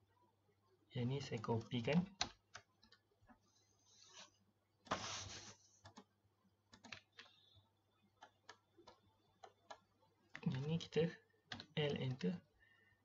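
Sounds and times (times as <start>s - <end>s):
keyboard and mouse clicks: 1.2s - 3.4s, 5.8s - 6.1s, 6.7s - 7.5s, 8.1s - 12.3s.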